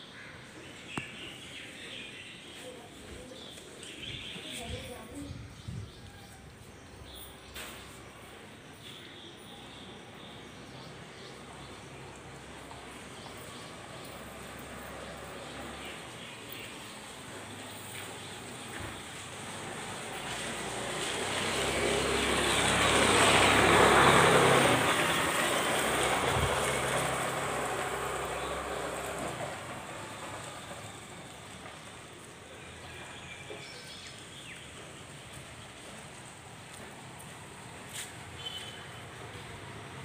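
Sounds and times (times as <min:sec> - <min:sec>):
low street background: 0:00.0 - 0:40.0
vehicle passing close by: 0:19.8 - 0:31.1.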